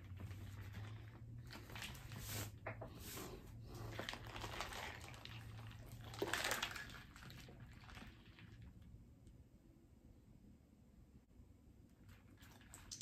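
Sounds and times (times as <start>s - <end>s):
plastic squeeze bottle crinkling: 0.0s - 8.6s.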